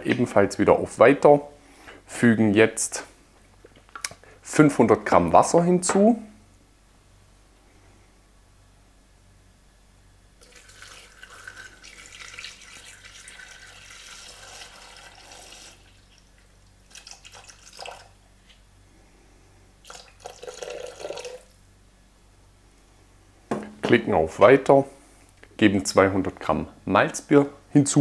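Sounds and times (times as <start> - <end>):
water pouring into bowl: 10.4 - 18.2, 19.8 - 21.6.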